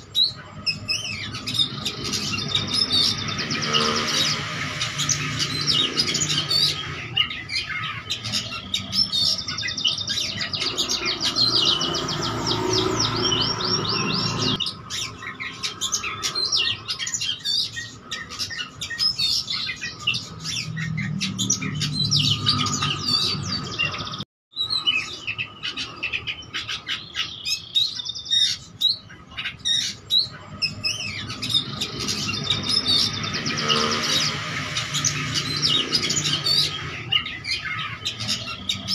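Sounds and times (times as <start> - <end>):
songbird singing with trills: 0.0 - 38.9.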